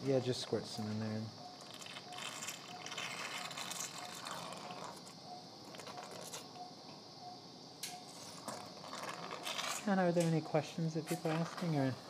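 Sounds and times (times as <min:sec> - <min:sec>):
patient monitor beeps: 0:00.6 - 0:03.1, 0:03.9 - 0:08.2.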